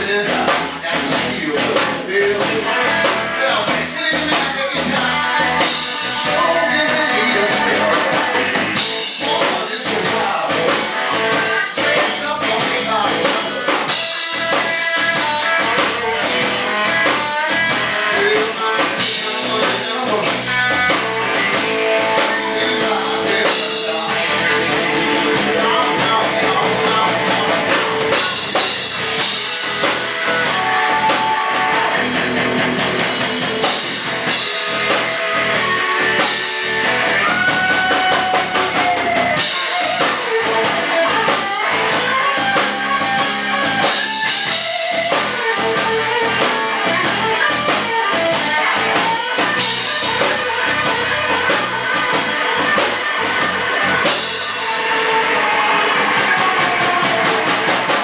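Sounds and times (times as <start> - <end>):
drum kit beat: 0.0 - 58.0
electric guitar lead: 0.0 - 58.0.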